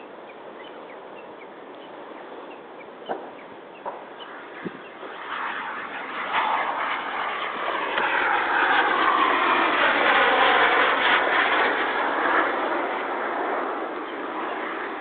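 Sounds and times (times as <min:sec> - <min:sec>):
model airplane motor passing: 0:04.1 - 0:15.0.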